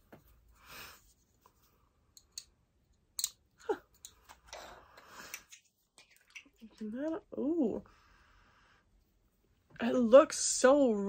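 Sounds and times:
soft rustles and scrapes: 0.0 - 1.9.

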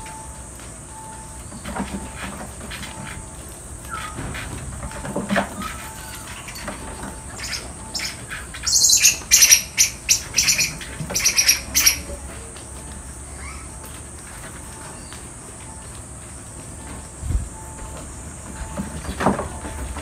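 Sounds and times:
monkeys chirping: 1.2 - 16.6.

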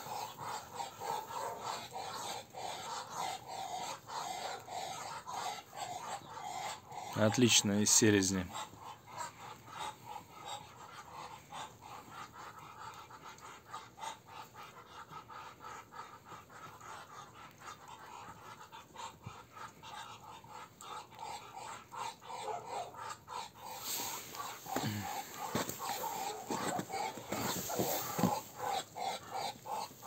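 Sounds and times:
ducks hissing puffs: 8.5 - 30.0.

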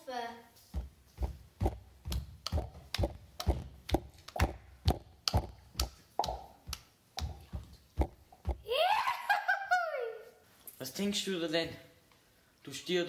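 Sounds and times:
heavy footsteps: 0.6 - 8.7.

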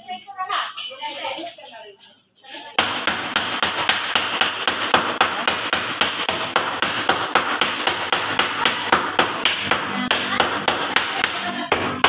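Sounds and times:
cleavers chopping on wood blocks: 2.8 - 12.0.

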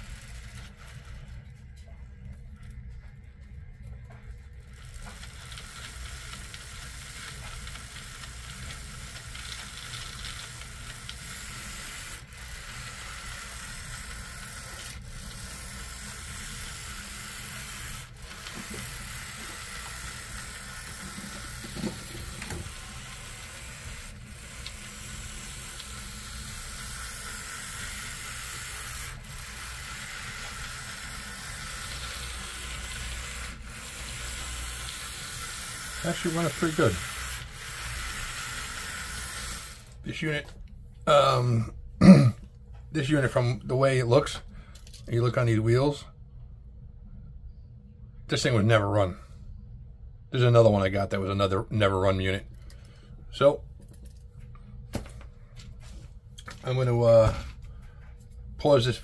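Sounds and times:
model train motor whirring: 0.0 - 1.5, 4.4 - 40.1.

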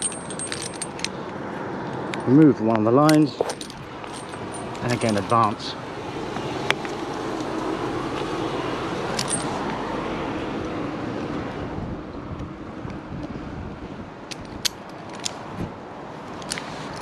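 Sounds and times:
wind buffeting microphone: 11.3 - 16.1.

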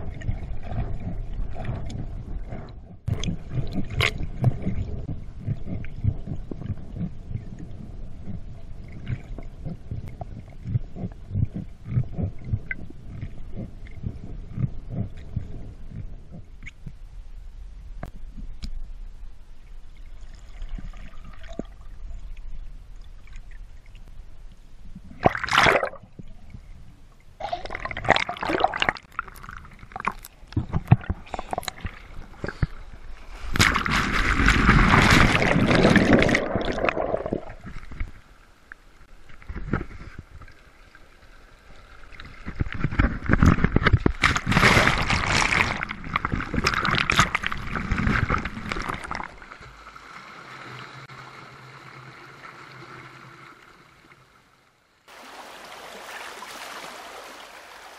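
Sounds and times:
sea water sloshing: 0.0 - 16.8, 24.8 - 54.3.

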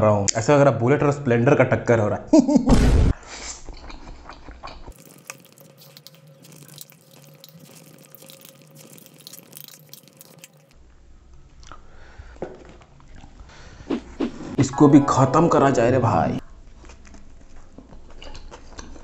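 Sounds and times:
noodles slurped and chewed: 3.6 - 10.8
wet mouth clicks and smacks: 3.7 - 10.8.

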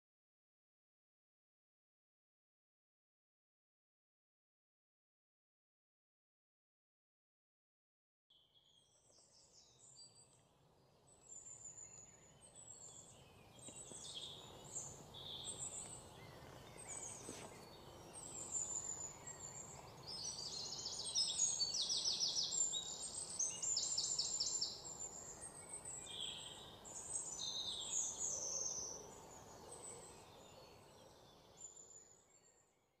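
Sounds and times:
birds chirping and trilling: 8.6 - 32.8.

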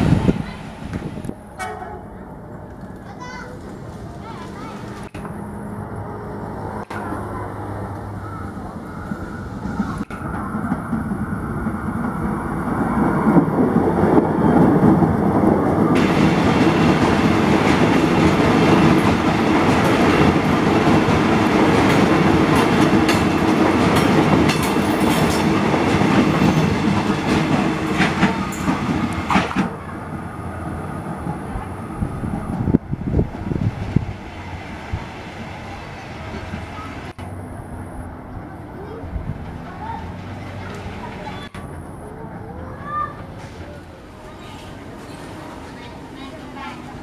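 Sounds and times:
electric train passing: 0.0 - 47.0
train wheels clacking over rail joints: 16.0 - 29.8.

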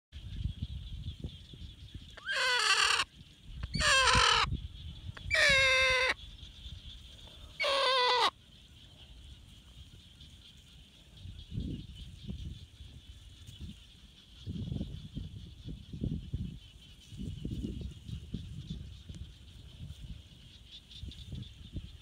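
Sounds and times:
bird squawking calls: 2.2 - 4.6, 5.2 - 6.2, 7.6 - 8.4.

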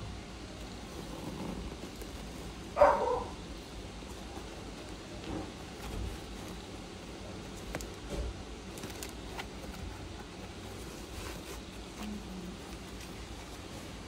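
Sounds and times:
plastic bag rustling: 4.0 - 14.0.

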